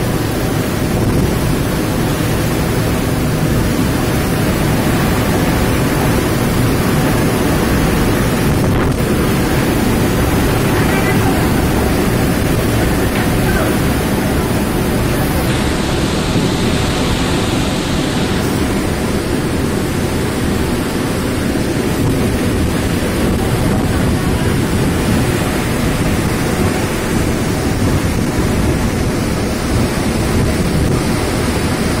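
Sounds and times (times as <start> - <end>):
storm wind and rain: 0.0 - 32.0
wind buffeting microphone: 0.0 - 32.0.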